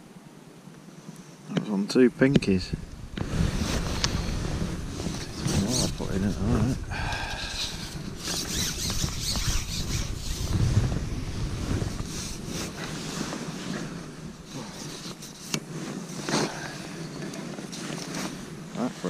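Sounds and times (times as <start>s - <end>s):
wind buffeting microphone: 2.3s - 19.0s
rustling handling noise: 7.8s - 19.0s.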